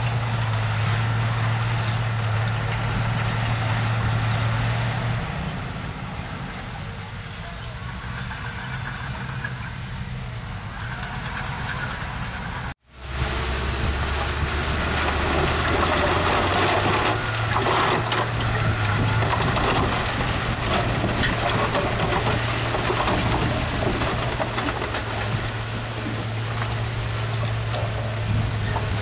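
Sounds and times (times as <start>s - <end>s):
diesel engine running: 0.0s - 29.0s
rough noisy layer: 7.8s - 29.0s.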